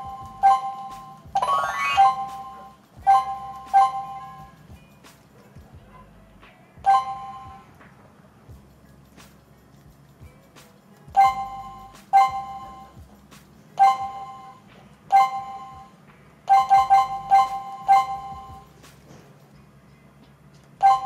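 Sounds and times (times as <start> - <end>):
keypad two-tone beeps: 0.0 - 4.5, 6.9 - 7.7, 11.2 - 13.0, 13.8 - 15.9, 16.5 - 18.7.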